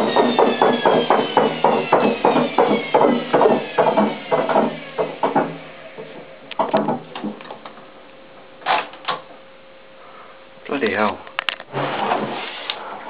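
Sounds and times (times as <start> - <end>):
washing machine clicks and knocks: 0.0 - 7.6
faint steady hum: 5.6 - 13.0.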